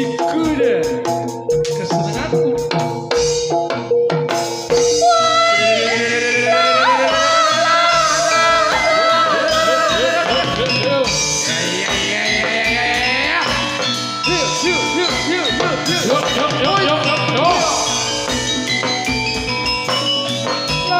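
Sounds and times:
gamelan ensemble music: 0.0 - 20.9
woman singing held line: 4.9 - 13.5.

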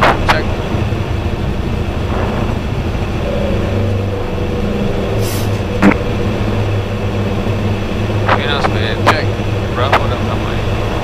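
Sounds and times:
engine and airflow rumble: 0.0 - 11.0
steady humming tones: 0.0 - 11.0.

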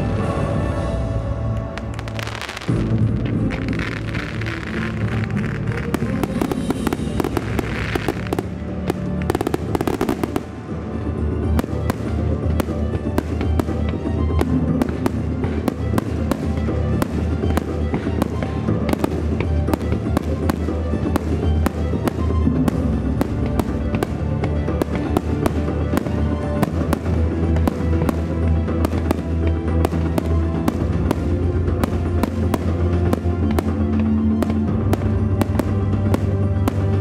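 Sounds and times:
firework shells bursting: 1.8 - 10.7
loud music from loudspeakers: 1.9 - 10.6.

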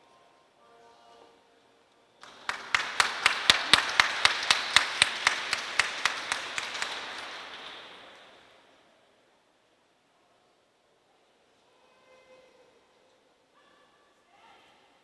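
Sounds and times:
person clapping close by: 2.2 - 8.4
audience applause: 2.2 - 8.5.

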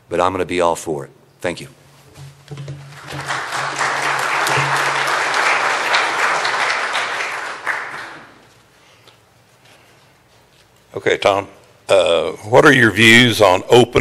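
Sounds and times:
audience applauding: 2.9 - 8.4.

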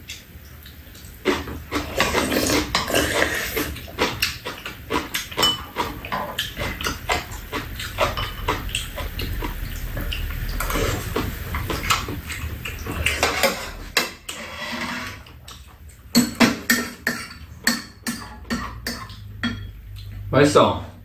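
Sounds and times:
wet chewing and slurping: 0.6 - 16.0
utensils clicking on bowls: 1.2 - 20.3.

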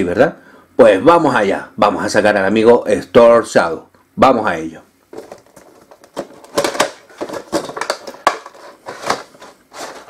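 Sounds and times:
plastic packaging clicks and crinkles: 5.1 - 10.0.

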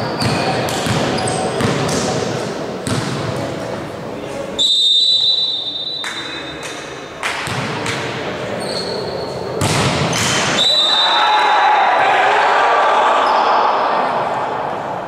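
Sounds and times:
volleyball bouncing on wooden floor: 0.2 - 2.1, 2.8 - 3.4, 7.2 - 8.1, 9.6 - 10.4
referee's whistle blast: 4.6 - 6.6, 10.4 - 11.6.

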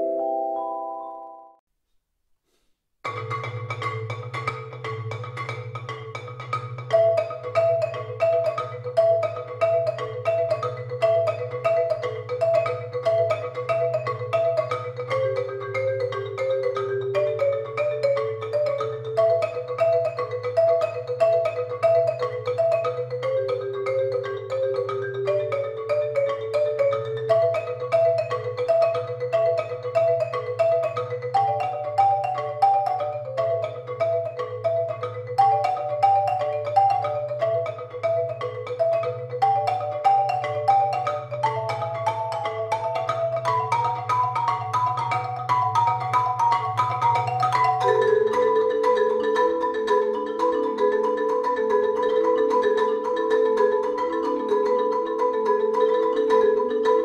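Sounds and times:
marimbas playing interlocking notes: 0.0 - 1.6, 3.0 - 57.0.

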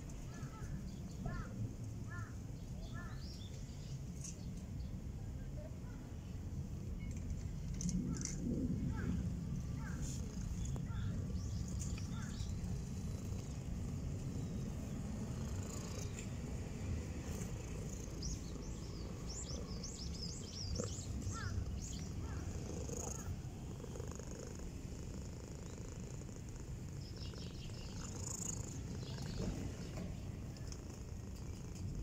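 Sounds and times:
cat purring: 7.1 - 32.0.

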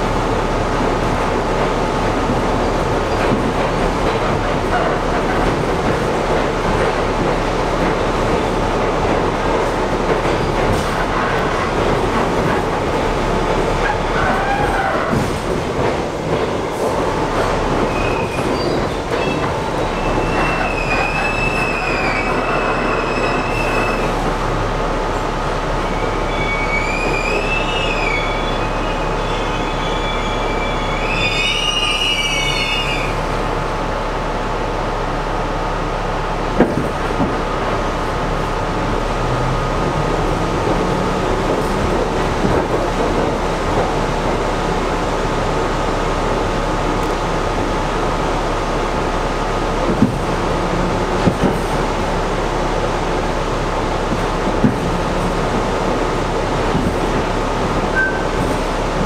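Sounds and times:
train wheels rumbling on track: 0.0 - 59.0
wheels squealing: 57.9 - 58.7.

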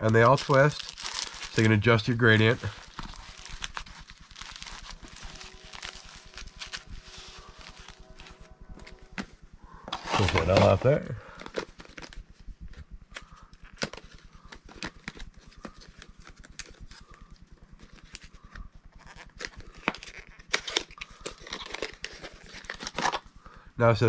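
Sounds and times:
cardboard box clicks and rustles: 9.9 - 12.2.

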